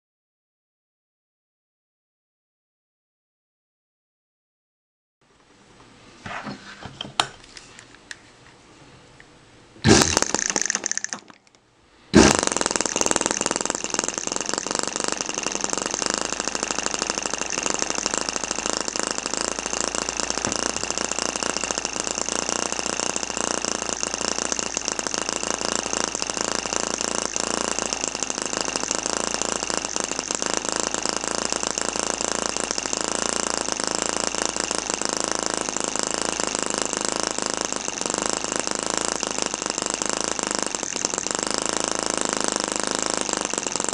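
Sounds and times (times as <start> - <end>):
small engine rattling clatter: 9.8 - 11.6, 12.2 - 43.9.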